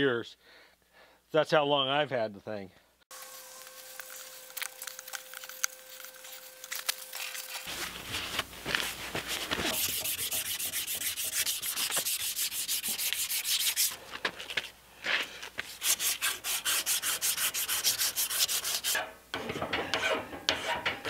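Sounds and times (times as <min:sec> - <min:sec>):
abrasive cloth polishing shaft: 0:07.6 - 0:14.0
wire brush scrubbing steel: 0:09.0 - 0:14.0, 0:15.7 - 0:21.0.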